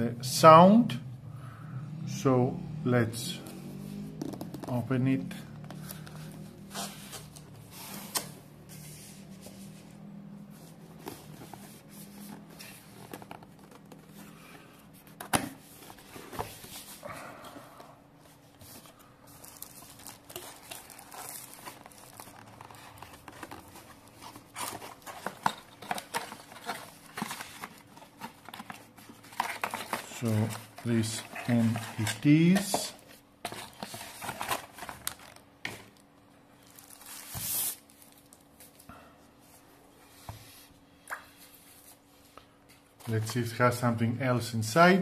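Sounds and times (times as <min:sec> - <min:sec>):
paper rustling and crinkling: 0:10.5 - 0:17.0, 0:18.3 - 0:36.0, 0:36.6 - 0:38.8.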